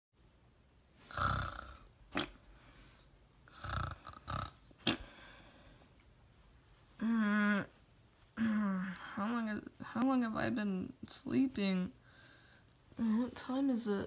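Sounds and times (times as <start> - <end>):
person imitating snoring: 1.0 - 2.4, 3.5 - 5.1.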